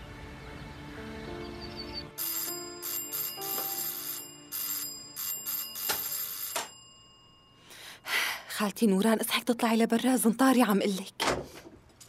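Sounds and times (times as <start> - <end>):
soft background music: 0.0 - 6.8
electric doorbell ringing: 2.2 - 7.8.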